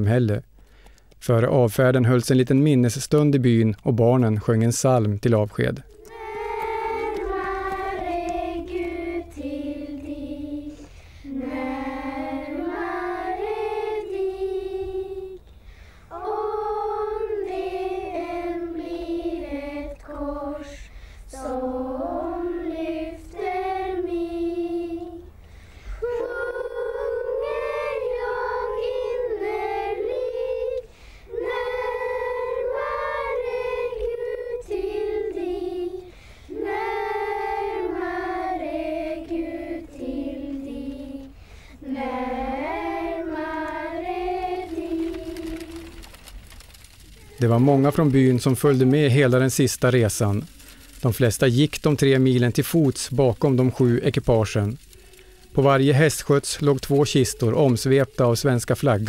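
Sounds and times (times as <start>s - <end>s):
children singing a hymn: 5.9s - 15.4s, 16.0s - 46.1s.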